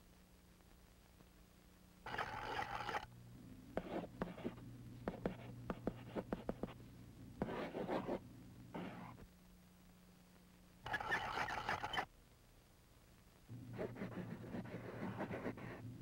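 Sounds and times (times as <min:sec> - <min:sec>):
low steady hum: 0:00.0 - 0:16.0
pencil scratching on paper: 0:03.8 - 0:06.8, 0:07.4 - 0:08.2, 0:08.8 - 0:09.2, 0:13.8 - 0:15.8.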